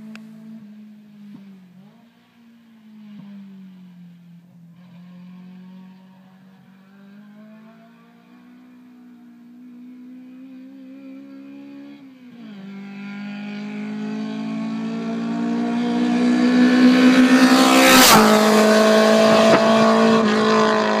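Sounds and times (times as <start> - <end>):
car engine accelerating: 9.7 - 21.0.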